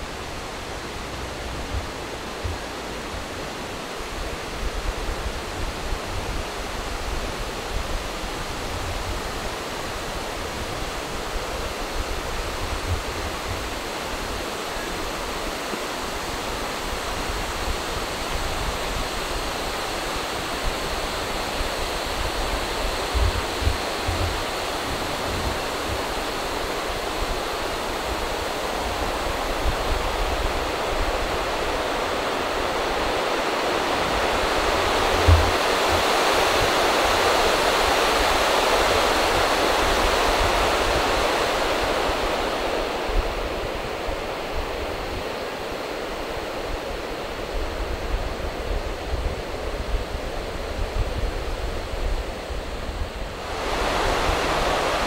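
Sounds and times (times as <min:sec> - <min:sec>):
steady rushing noise: 0:00.0 - 0:55.0
soft low thumps: 0:35.1 - 0:36.0.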